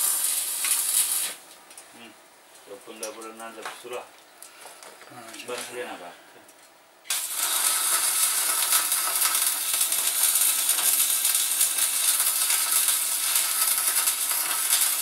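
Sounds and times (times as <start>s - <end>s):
welding arc crackling: 0.0s - 1.6s, 7.0s - 15.0s.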